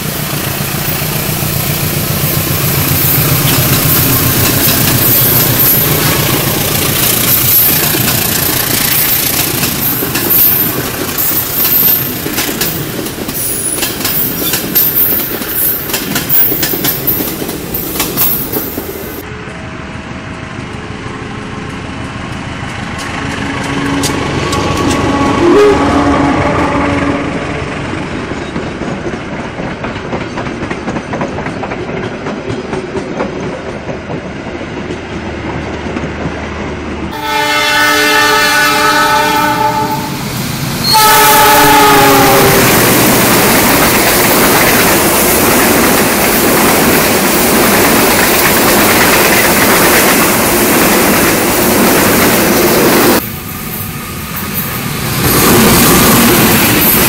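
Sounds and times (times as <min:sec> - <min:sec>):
locomotive engine: 0:00.0 - 0:57.0
train wheels on rails: 0:00.0 - 0:57.0
locomotive horn blasts: 0:24.9 - 0:27.5, 0:37.1 - 0:40.2, 0:40.8 - 0:42.9.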